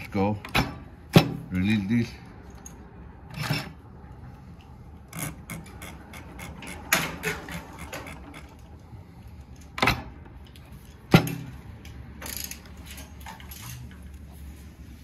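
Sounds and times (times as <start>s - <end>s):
clicks and knocks on sewing machine: 5.2s - 8.6s.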